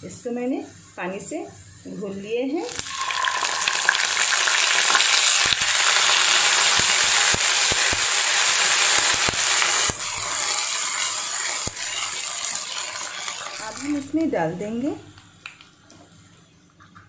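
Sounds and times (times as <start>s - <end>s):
loud sizzling in hot oil: 2.6s - 14.4s.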